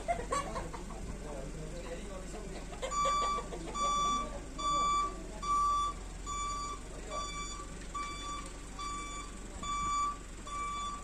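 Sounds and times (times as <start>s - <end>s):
electronic beeper short beeps: 2.9s - 11.0s.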